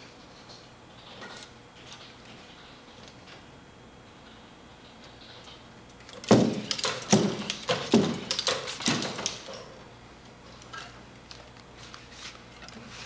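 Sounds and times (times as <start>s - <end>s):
robot footsteps on plywood: 6.2s - 9.5s.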